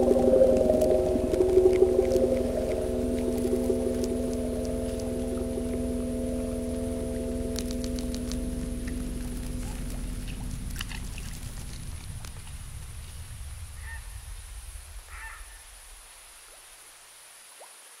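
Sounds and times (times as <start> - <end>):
low rumble: 0.0 - 16.8
steady high hiss: 0.0 - 18.0
waterfowl calls: 13.8 - 14.2, 15.1 - 15.8.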